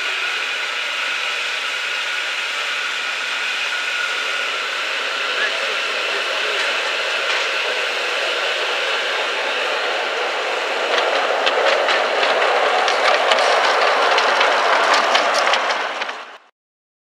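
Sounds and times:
miniature train running past: 0.0s - 16.5s
wheels clicking over rail joints: 5.2s - 16.4s.

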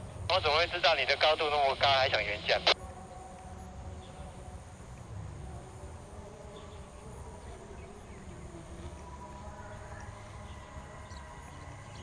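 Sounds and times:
faint insect-like buzz: 2.8s - 12.0s.

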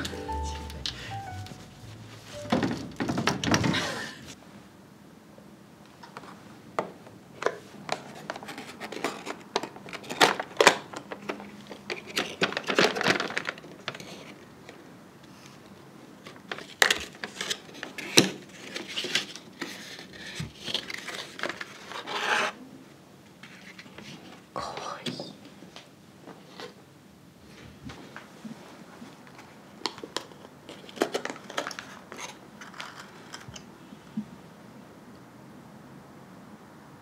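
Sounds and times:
box and tissue paper rustling: 17.1s - 22.4s.

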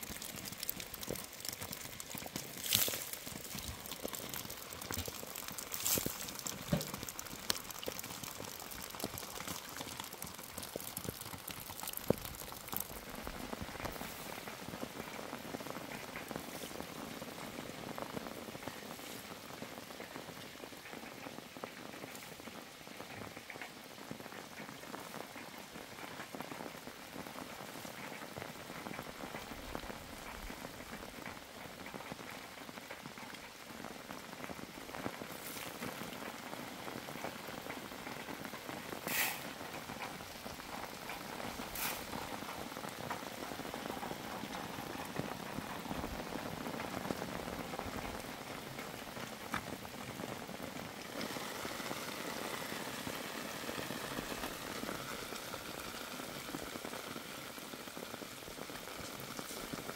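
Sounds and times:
steady rain patter: 0.0s - 59.9s
loud single raindrop taps: 6.0s - 8.0s.

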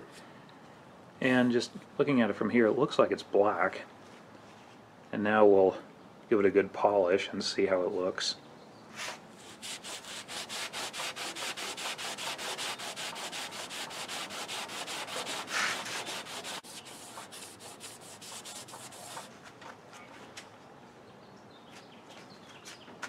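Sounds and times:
rag rubbing painted steel: 9.4s - 19.4s.

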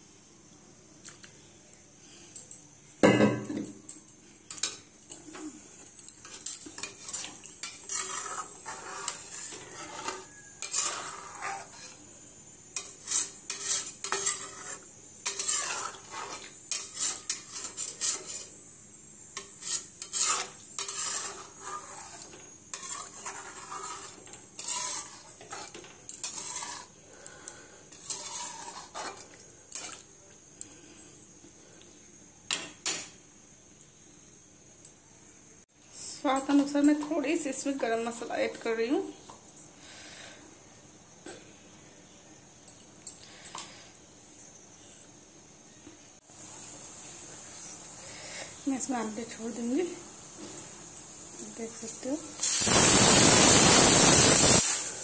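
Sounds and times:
faint steady hiss: 0.0s - 55.0s
metal spatula scraping a pan: 6.2s - 12.1s, 12.7s - 18.6s, 19.3s - 30.0s.

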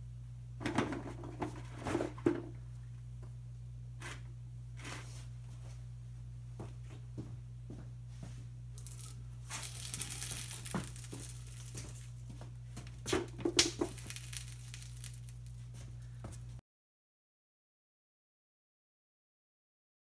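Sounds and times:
balls crackling under heavy safe: 8.8s - 16.6s.

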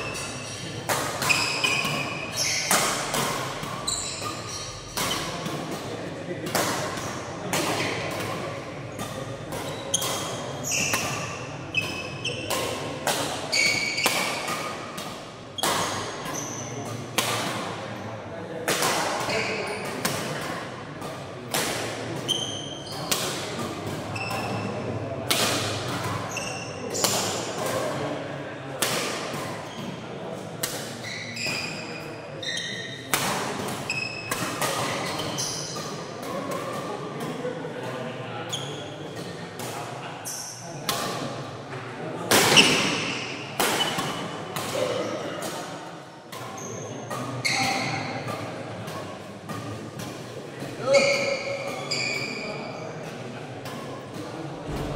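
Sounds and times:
shoes squeaking on floor: 0.0s - 5.4s, 9.0s - 12.6s, 13.4s - 14.8s, 15.6s - 16.8s, 22.2s - 23.1s, 24.1s - 24.8s, 26.1s - 27.4s, 31.0s - 33.1s, 33.8s - 35.9s, 38.5s - 38.8s, 46.4s - 48.2s, 50.8s - 52.8s
rackets hitting shuttlecock: 0.0s - 17.9s, 18.6s - 28.2s, 30.6s - 40.0s, 40.8s - 41.4s, 42.2s - 45.7s, 46.3s - 52.3s
racket smacking shuttlecock: 0.9s - 17.8s.

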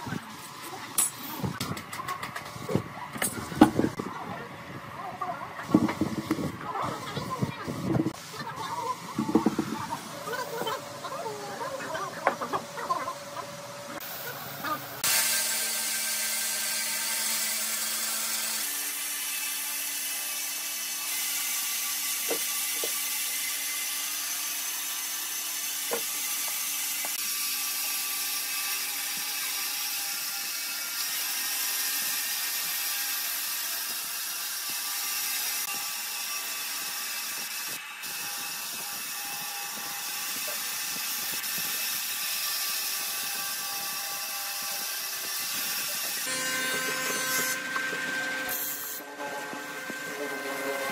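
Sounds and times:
bandsaw cutting through log: 15.0s - 50.9s.

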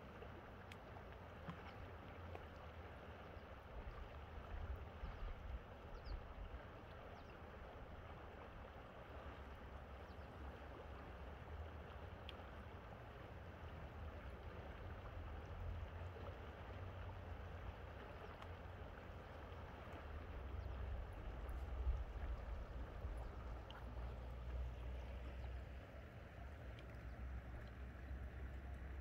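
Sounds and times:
river water flowing over rocks: 0.0s - 29.0s
wind rumble on microphone: 4.0s - 6.5s, 20.5s - 23.7s.

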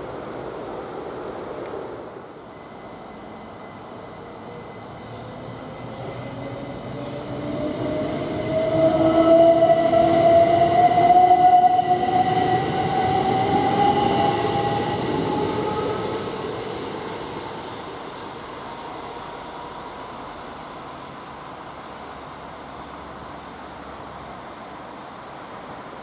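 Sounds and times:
train wheels rumbling on rails: 3.6s - 24.0s.

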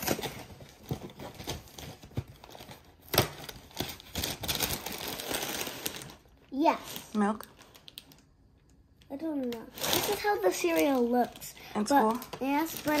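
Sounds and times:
plastic bag crinkling and tearing: 0.0s - 8.3s, 9.4s - 13.0s.

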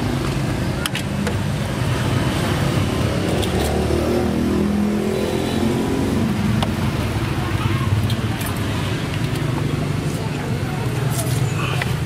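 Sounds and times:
road traffic rumble: 0.0s - 12.0s
vehicle engine passing: 1.6s - 10.1s.

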